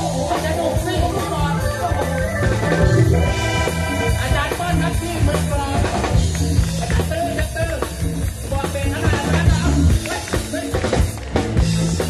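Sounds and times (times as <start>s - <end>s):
xylophone melody: 0.0s - 7.6s
electric guitar: 0.0s - 12.0s
heavy bass line: 0.0s - 12.0s.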